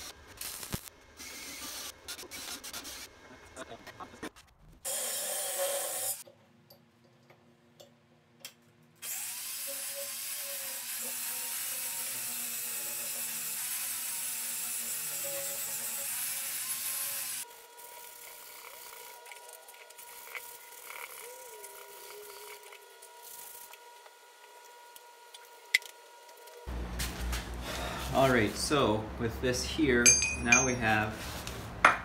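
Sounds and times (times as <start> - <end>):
angle grinder grinding metal: 9.0 - 26.7.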